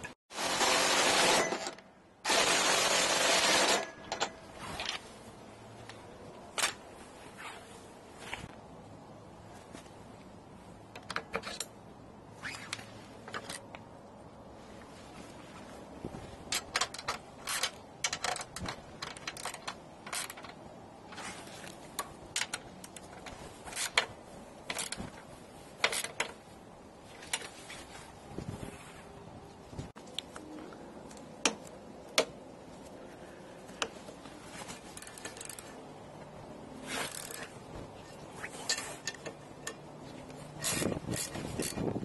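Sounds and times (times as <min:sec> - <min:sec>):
metal tools clicking and clinking: 0:38.6 - 0:41.9.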